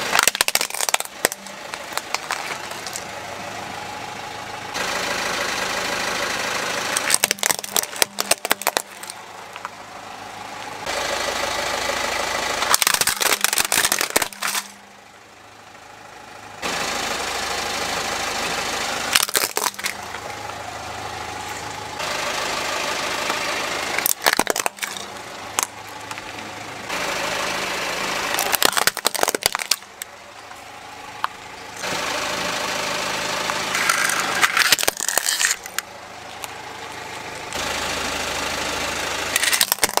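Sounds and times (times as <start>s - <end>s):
plastic toys cracking under tyre: 0.0s - 3.1s, 7.0s - 9.8s, 12.6s - 14.8s, 19.1s - 20.3s, 23.9s - 26.4s, 28.3s - 30.1s, 33.4s - 36.6s, 39.4s - 40.0s
car engine running: 0.0s - 40.0s.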